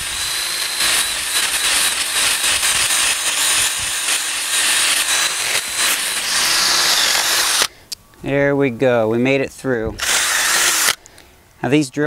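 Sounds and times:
cordless drill boring into wood: 0.0s - 7.7s, 10.0s - 11.0s.

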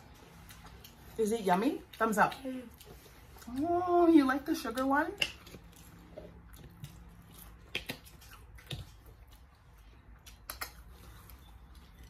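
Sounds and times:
person chewing: 0.0s - 1.2s, 1.8s - 3.8s, 4.6s - 12.0s
mouth clicks and smacks: 6.5s - 11.9s.

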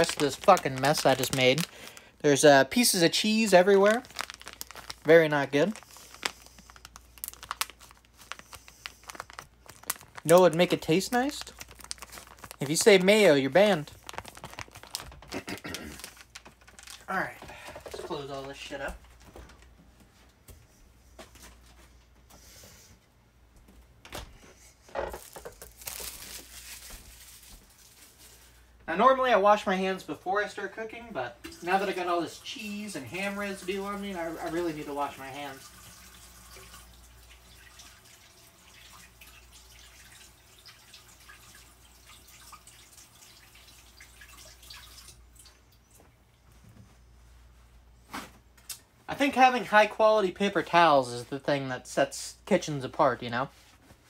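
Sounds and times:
plastic packaging rustling: 0.0s - 19.5s, 24.9s - 28.8s, 31.6s - 35.6s
tap water running into sink: 31.4s - 31.9s, 34.4s - 45.5s.

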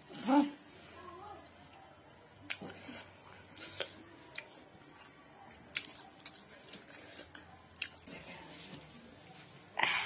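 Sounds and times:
eating clicks and smacks: 5.7s - 8.1s.

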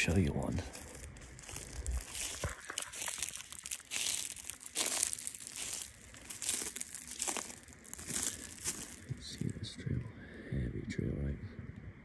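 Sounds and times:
footsteps crunching dry leaves: 0.0s - 9.6s.

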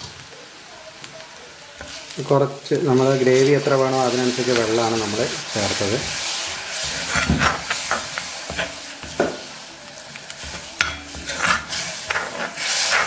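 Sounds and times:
food sizzling: 0.0s - 13.0s
spoon scraping iron pan: 5.8s - 9.5s, 10.4s - 13.0s.

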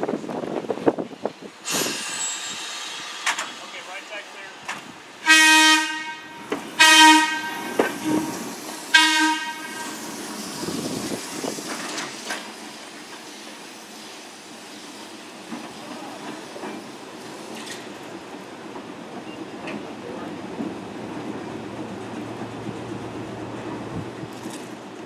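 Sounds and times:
air horn blasts: 5.2s - 10.0s.

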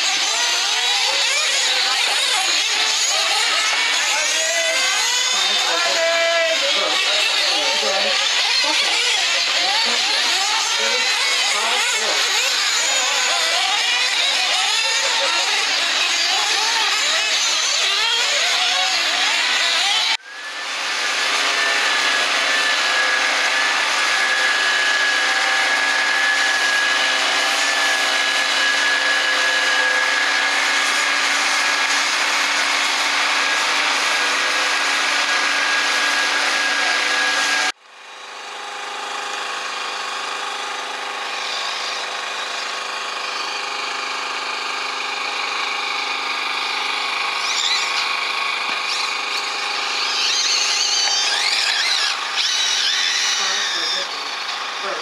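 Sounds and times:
leaf blower running: 0.0s - 18.2s, 18.8s - 44.3s, 45.0s - 55.0s
rc buggy engines buzzing: 0.0s - 20.6s, 40.9s - 55.0s.

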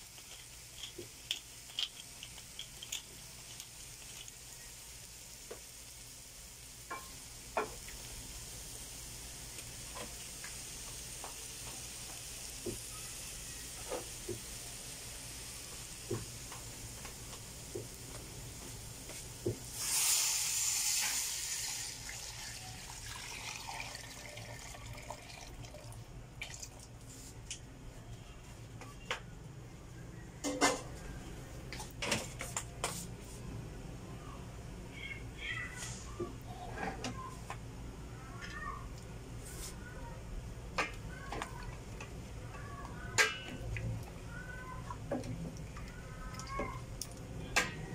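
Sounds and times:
food sizzling in a pot: 0.0s - 25.0s
water pouring with hiss: 0.0s - 26.8s.

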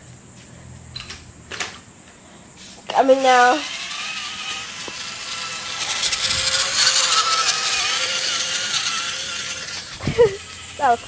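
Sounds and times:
toy truck electric motor whining: 3.0s - 11.0s.

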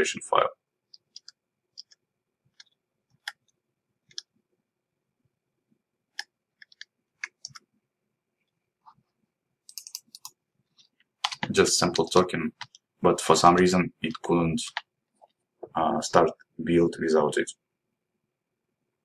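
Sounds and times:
computer keyboard and mouse clicks: 0.9s - 4.3s, 6.1s - 7.7s, 9.6s - 12.9s, 14.0s - 15.4s
typing keystrokes: 9.7s - 10.3s.

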